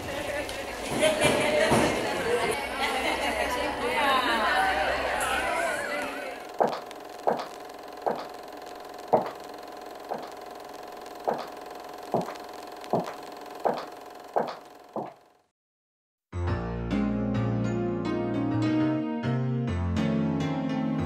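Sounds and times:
sharp knocks: 6.6 - 8.3, 9.1 - 9.4, 10.1 - 10.4, 11.3 - 15.2.

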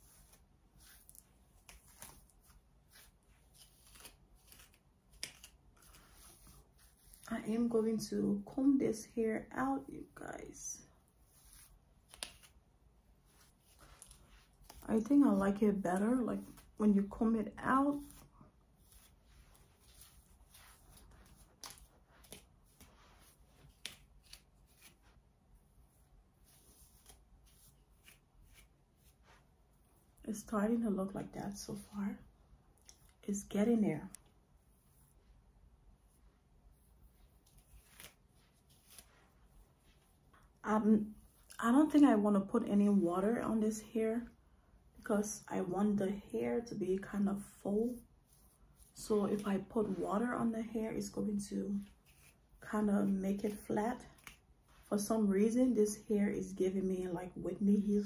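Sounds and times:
comb brushing through hair: 0.0 - 9.0, 9.6 - 30.6, 32.8 - 41.6, 47.7 - 51.2, 51.8 - 55.1.

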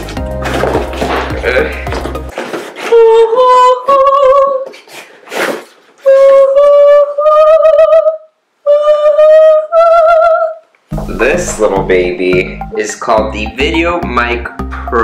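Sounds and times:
person singing with vibrato: 2.7 - 4.9, 6.0 - 12.4.

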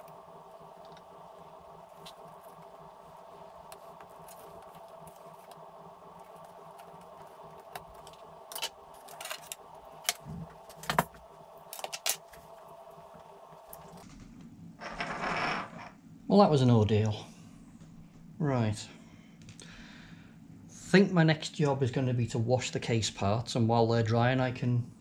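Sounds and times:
steady background hum: 0.0 - 25.0
plastic parts clicking and clattering: 6.8 - 12.4.

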